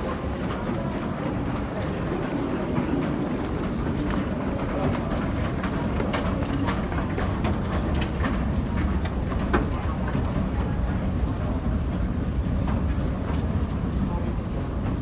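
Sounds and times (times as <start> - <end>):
clicks and knocks from steps: 0.0 - 11.1.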